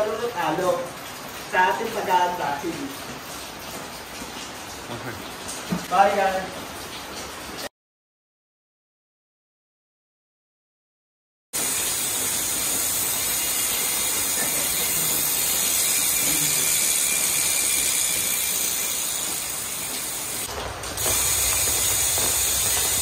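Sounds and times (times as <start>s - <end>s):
bicycle hub ratcheting: 11.6s - 23.0s.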